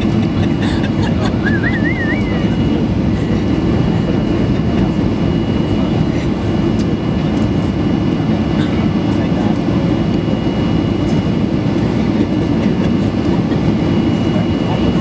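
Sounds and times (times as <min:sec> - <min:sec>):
airplane cabin rumble: 0:00.0 - 0:15.0.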